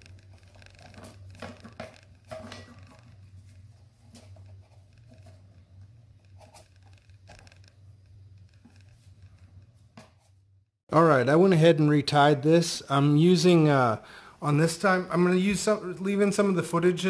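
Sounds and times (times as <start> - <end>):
cord rubbing and rustling: 0.0 - 10.5.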